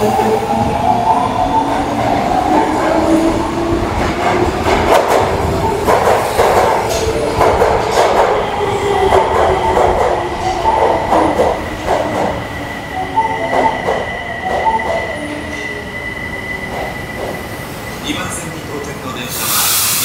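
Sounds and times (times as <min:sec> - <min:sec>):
train wheels clattering: 0:02.4 - 0:12.5, 0:16.6 - 0:17.7
steady high tone: 0:08.4 - 0:18.2.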